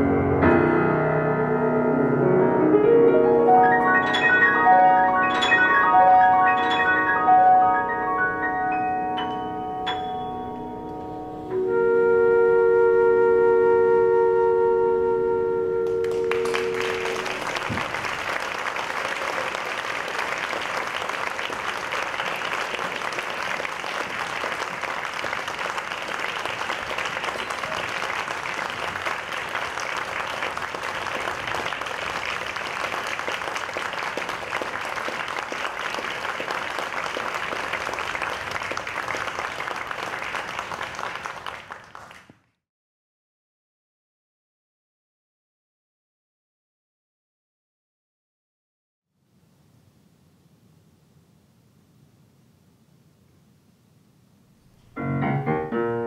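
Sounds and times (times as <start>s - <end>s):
music held chord: 0.0s - 17.4s
audience applauding: 3.8s - 8.3s, 15.8s - 42.6s.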